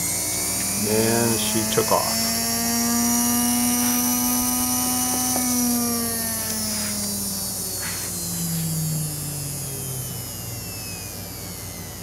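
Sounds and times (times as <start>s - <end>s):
electric motor whine falling in pitch: 0.0s - 12.0s.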